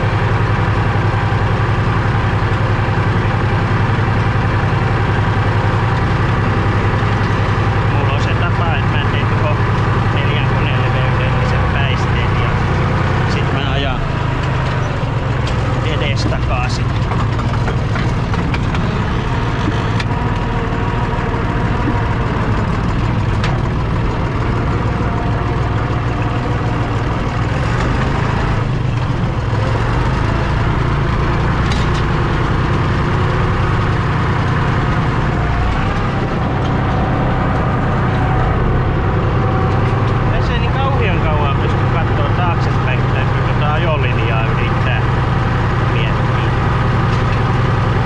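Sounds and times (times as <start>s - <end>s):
tractor diesel engine under load: 0.0s - 48.0s.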